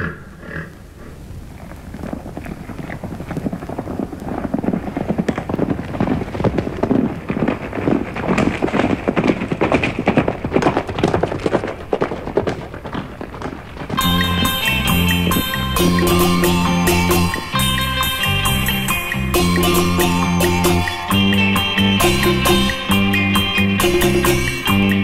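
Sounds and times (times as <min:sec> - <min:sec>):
horse hoofbeats galloping: 0:00.0 - 0:25.0
song: 0:14.0 - 0:25.0.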